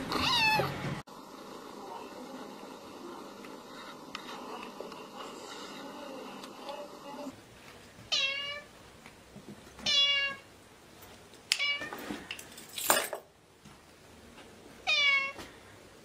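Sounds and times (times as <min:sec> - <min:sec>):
kitten meowing: 0:00.1 - 0:00.7.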